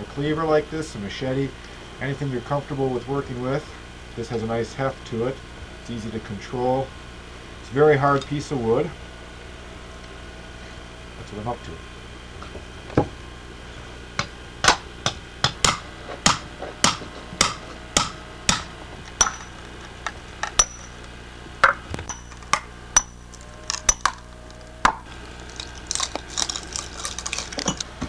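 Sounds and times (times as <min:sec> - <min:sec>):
cleaver chopping hard wood: 0:14.6 - 0:19.5.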